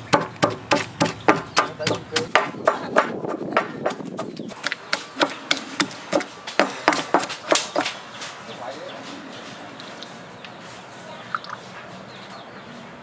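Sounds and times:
stone pestle pounding in mortar: 0.0 - 8.0.

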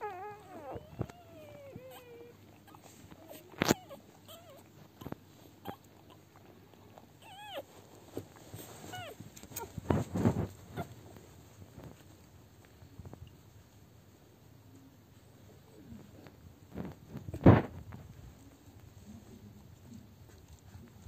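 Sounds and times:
puppies squeaking and whimpering: 0.0 - 6.3, 7.2 - 7.7
scuffle: 7.5 - 13.3.

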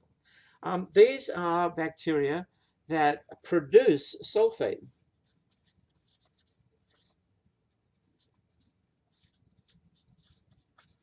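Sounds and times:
marker pen scratching on whiteboard: 4.8 - 11.0.

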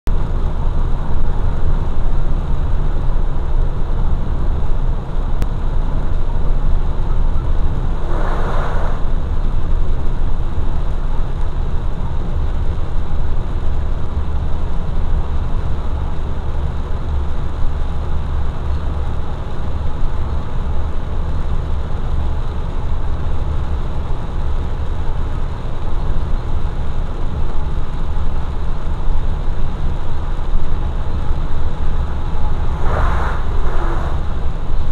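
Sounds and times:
vehicle engine and road noise: 0.1 - 34.9
tyres hissing on wet pavement: 7.9 - 9.2, 32.4 - 34.9.

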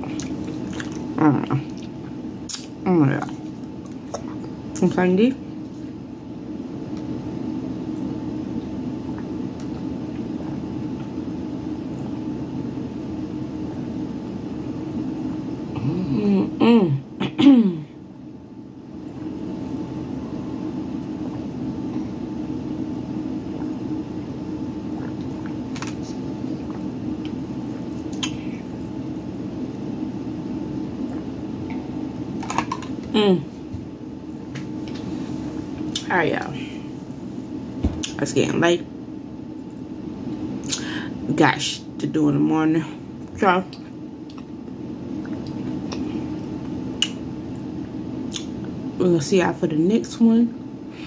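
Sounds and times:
low room hum: 0.0 - 51.0
person clearing throat: 15.8 - 18.0.

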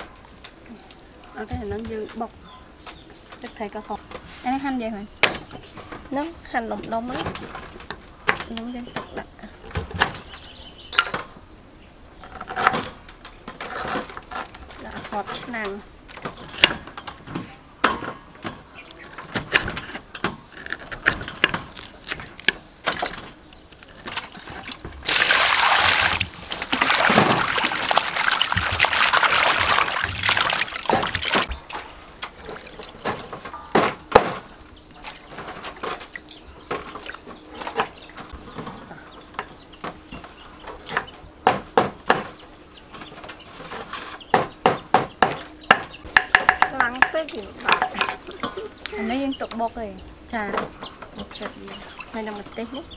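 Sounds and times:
water splashing: 24.2 - 33.1.

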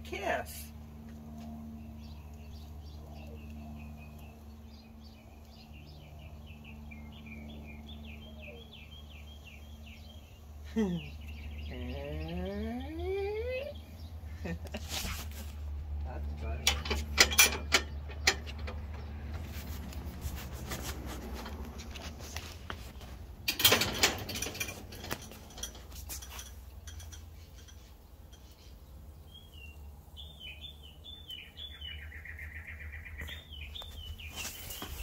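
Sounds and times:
steady low hum: 0.0 - 31.2
small bird chirping: 1.8 - 14.2, 25.0 - 35.0
rustling noise: 14.7 - 15.8, 19.3 - 26.7, 33.7 - 35.0.

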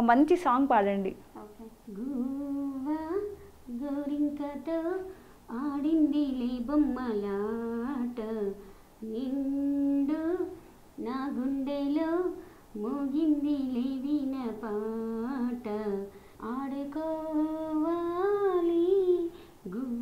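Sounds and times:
woman singing unaccompanied: 1.3 - 20.0.

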